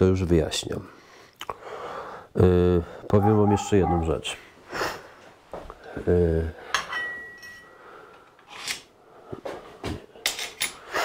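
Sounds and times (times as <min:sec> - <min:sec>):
steel parts clinking on workbench: 0:06.7 - 0:07.7, 0:10.2 - 0:10.8.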